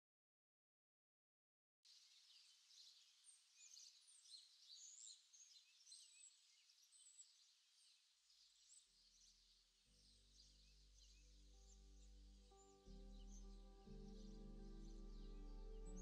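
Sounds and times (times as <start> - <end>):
birds chirping and trilling: 3.6 - 9.3, 10.0 - 16.0
low held music notes: 10.0 - 16.0.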